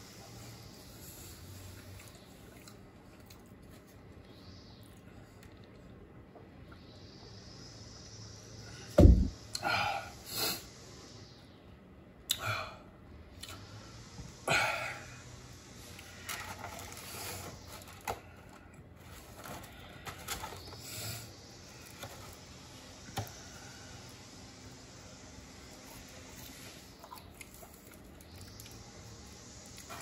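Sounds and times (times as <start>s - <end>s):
chewing and mouth noises: 1.8s - 6.0s
loud deep thump: 9.0s - 9.4s.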